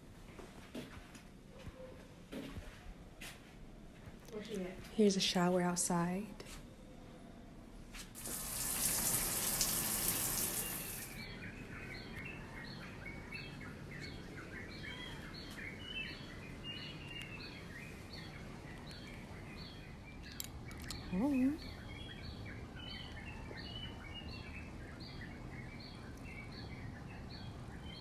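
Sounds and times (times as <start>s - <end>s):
shower water spraying: 8.2s - 11.2s
small chirping calls: 8.2s - 28.0s.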